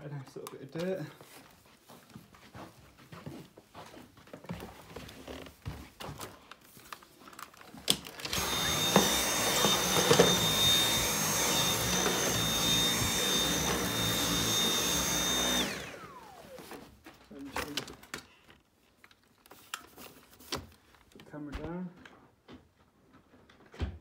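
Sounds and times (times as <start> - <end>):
vacuum cleaner whining: 8.0 - 17.0
vacuum motor winding down: 8.2 - 16.8.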